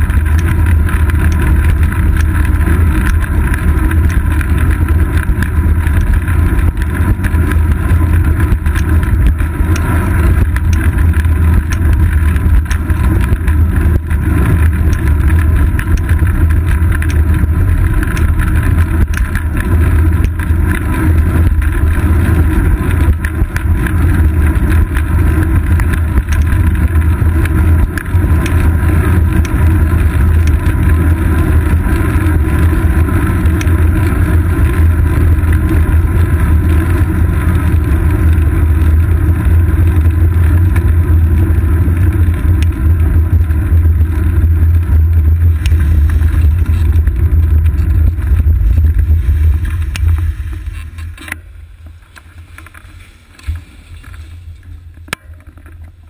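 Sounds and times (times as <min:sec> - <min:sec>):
road vibration rumble: 0:00.0 - 0:56.0
wind noise: 0:00.0 - 0:56.0.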